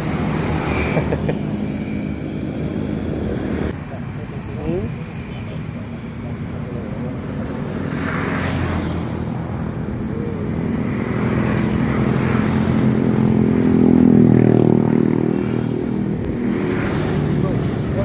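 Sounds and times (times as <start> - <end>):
vehicle engine passing: 6.4 - 18.0.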